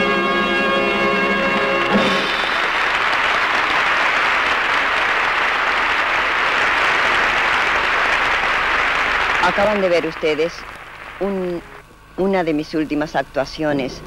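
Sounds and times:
audience applauding: 1.9s - 11.8s.

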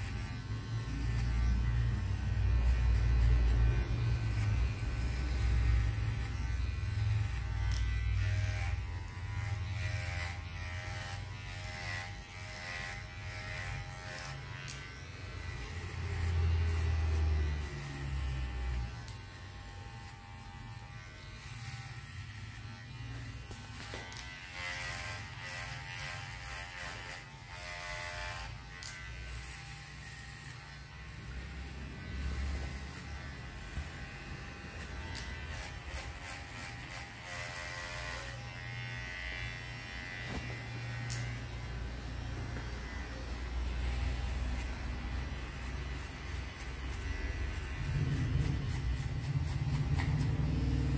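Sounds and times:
electric hair clipper buzzing: 0.0s - 50.9s.

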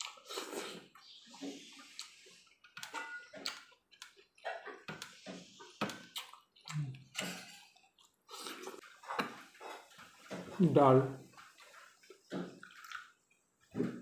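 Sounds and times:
lips smacking while chewing: 3.4s - 9.4s.

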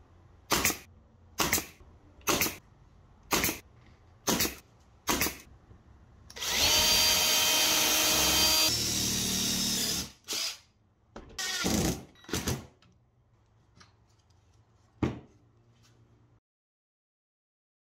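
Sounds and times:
cordless drill boring into wood: 6.3s - 10.6s, 11.4s - 11.8s.

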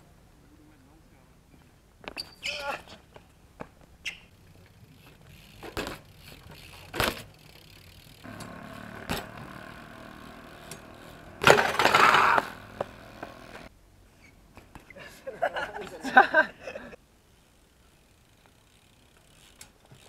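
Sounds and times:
tyres rolling on concrete: 4.5s - 13.7s
bike clattering onto concrete: 5.0s - 13.7s
bike wheels knocking on landing: 8.3s - 13.7s.

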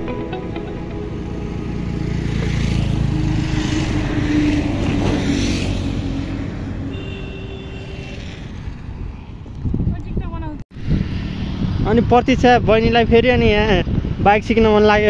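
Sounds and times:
vehicle passing by: 0.2s - 9.8s, 10.8s - 12.8s.

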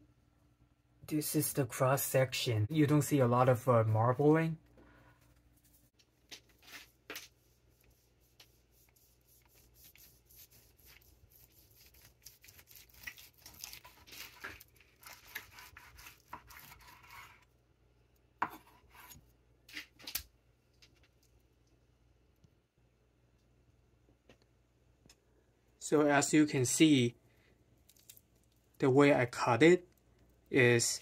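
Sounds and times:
knife slicing through meat: 9.6s - 17.5s.

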